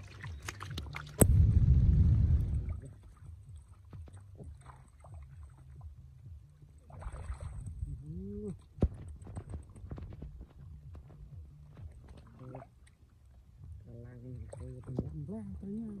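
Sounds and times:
hands sloshing through muddy water: 0.0 - 1.3, 2.4 - 6.0, 6.8 - 10.2
small splashes: 0.0 - 1.5, 2.3 - 5.9, 6.8 - 10.2.

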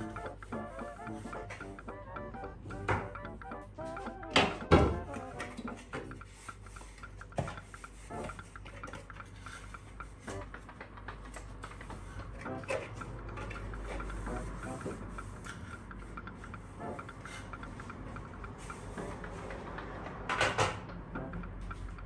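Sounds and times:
plastic and glass bins knocking: 4.4 - 5.1.

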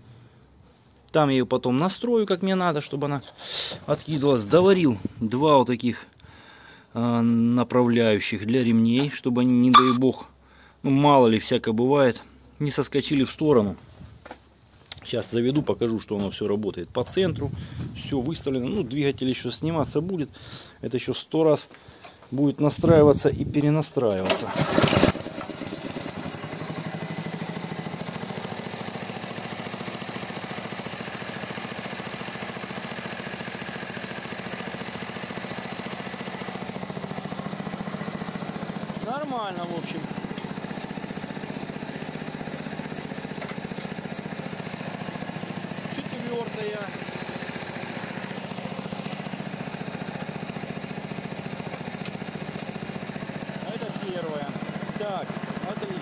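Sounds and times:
small petrol engine idling: 24.2 - 56.0.

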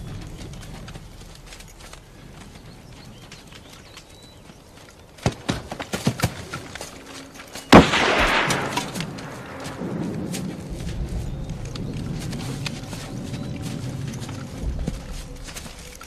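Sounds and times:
rifle gunshots: 7.7 - 9.8.

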